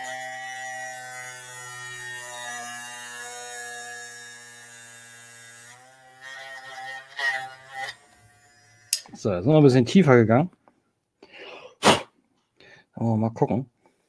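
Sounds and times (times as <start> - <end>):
rotary tool grinding plastic: 1.3 - 9.1.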